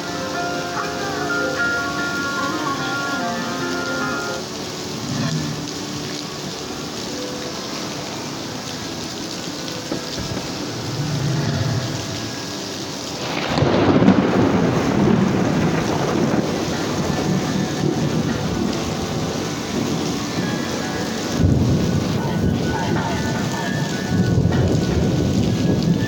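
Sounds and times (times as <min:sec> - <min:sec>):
heavy rain pouring: 0:00.0 - 0:26.0
thunder rumbling: 0:10.0 - 0:12.6, 0:13.2 - 0:26.0.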